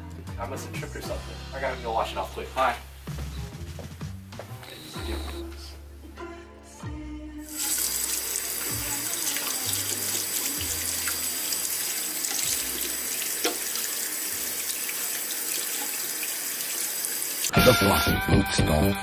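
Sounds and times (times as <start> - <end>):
faucet running into sink: 7.5 - 17.5
hands rinsed under water: 7.5 - 17.5.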